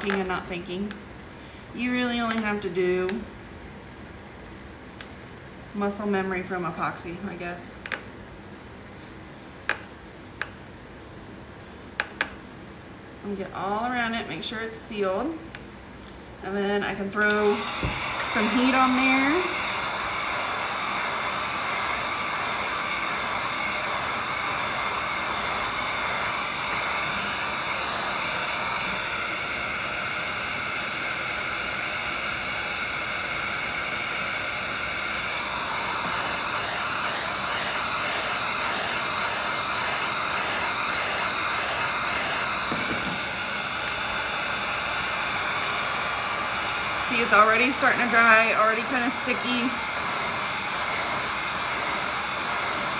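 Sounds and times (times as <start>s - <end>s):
heat gun blowing air: 16.5s - 52.9s.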